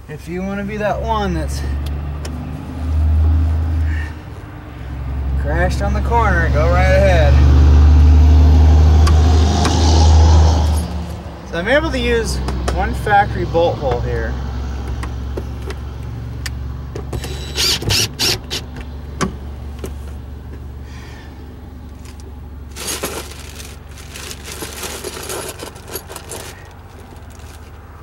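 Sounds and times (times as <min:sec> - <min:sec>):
low vehicle rumble: 0:00.0 - 0:28.0
metal tools clinking and rattling: 0:22.7 - 0:27.7.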